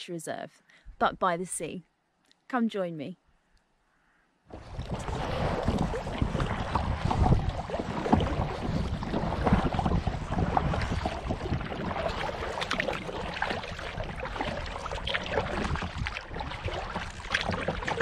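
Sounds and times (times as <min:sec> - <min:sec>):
kayak paddle splashing: 0:04.5 - 0:18.0
wind noise on microphone: 0:04.5 - 0:18.0.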